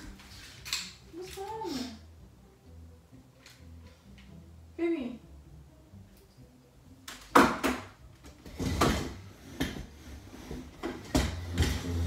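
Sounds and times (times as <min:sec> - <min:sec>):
objects knocking and clattering: 0:07.1 - 0:12.0.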